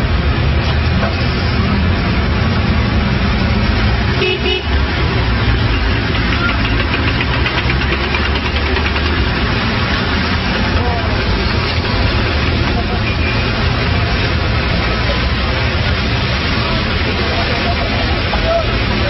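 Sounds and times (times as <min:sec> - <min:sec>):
city traffic: 0:00.0 - 0:19.0
car horn toot: 0:04.2 - 0:04.7.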